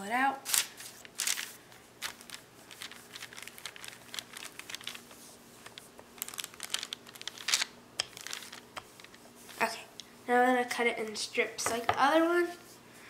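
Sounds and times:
paper crinkling and crackling: 0.4 - 9.7.

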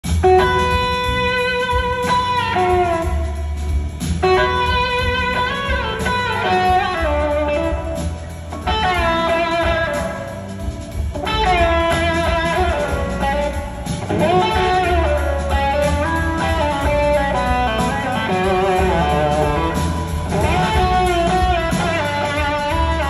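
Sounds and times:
electric slide guitar solo: 4.2 - 10.4, 11.2 - 23.0.

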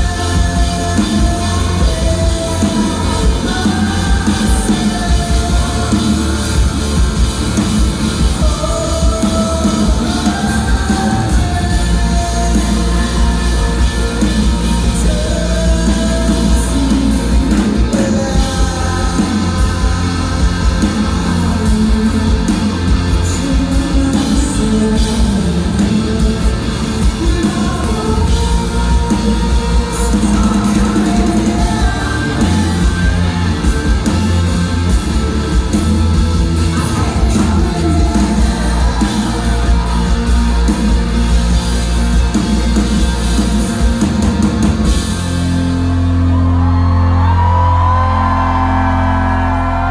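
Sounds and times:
person singing: 0.0 - 42.8
drums: 0.0 - 49.9
electric guitars: 0.0 - 49.9.

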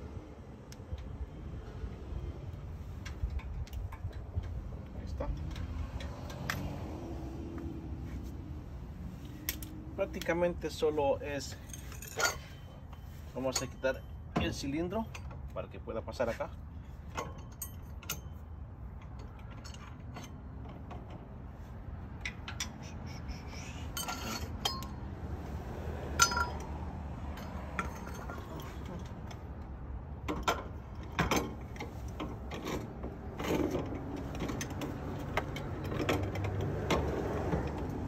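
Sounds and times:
metal parts clinking and knocking: 11.4 - 15.6, 17.0 - 21.3, 22.1 - 25.1, 26.2 - 29.6, 30.2 - 38.0.

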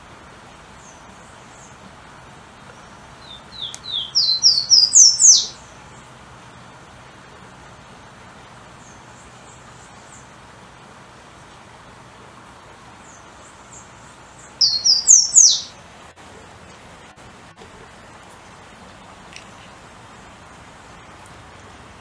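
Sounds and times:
steady hiss: 0.0 - 22.0
bird singing whistled notes: 3.2 - 5.7, 14.4 - 15.8.

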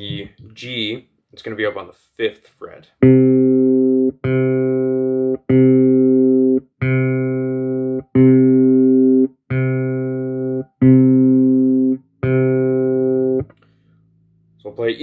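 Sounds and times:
electric bass plucked note: 3.0 - 13.5.

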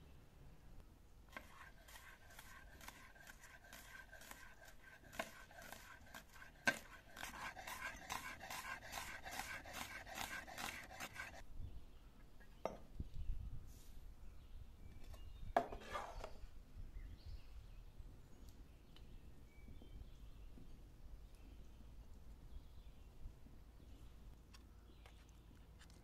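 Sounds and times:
knife slicing onion on stone: 1.3 - 11.4.

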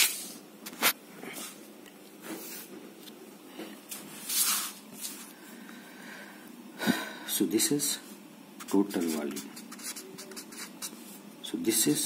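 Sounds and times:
marker scraping on paper: 8.6 - 11.2.

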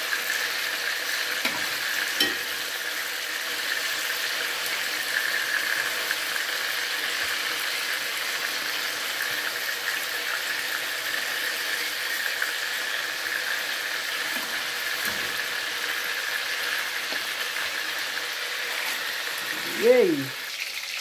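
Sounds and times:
chicken sizzling in oil: 0.0 - 21.0
fork turning food in pan: 1.4 - 2.6.

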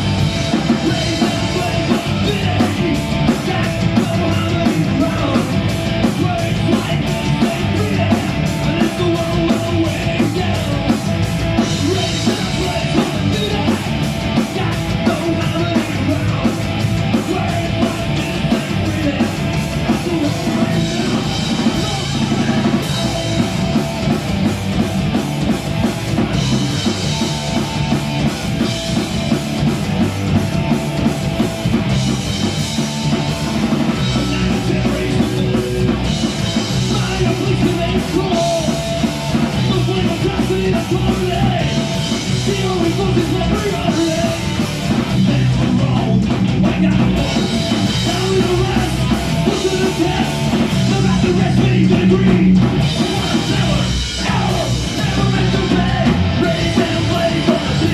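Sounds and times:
bass guitar: 0.0 - 57.9
distorted electric guitars: 0.0 - 57.9
drum kit: 0.0 - 57.9
person singing into a microphone: 0.6 - 11.0, 11.6 - 23.5, 33.9 - 35.8, 36.7 - 57.9.

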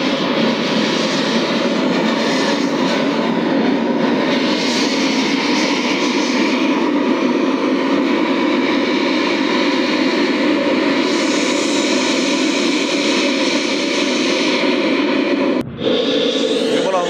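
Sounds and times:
loud rushing noise from speakers: 15.3 - 17.0.

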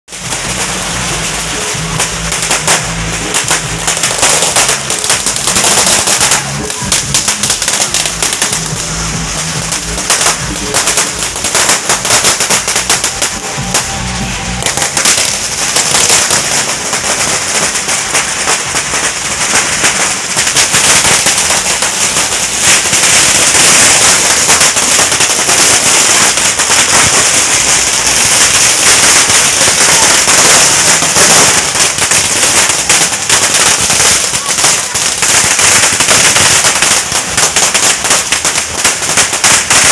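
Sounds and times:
firecrackers crackling: 0.1 - 39.9
music: 0.2 - 20.4.

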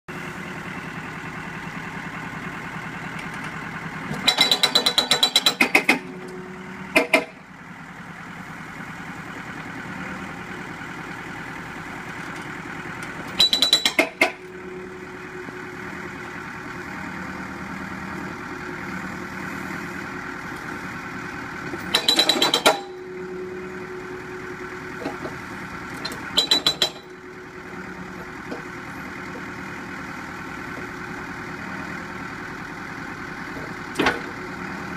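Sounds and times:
diesel engine running: 0.1 - 34.9
hydraulic breaker hammering rubble: 4.2 - 6.1, 13.4 - 14.4, 21.8 - 23.0, 26.4 - 27.1.

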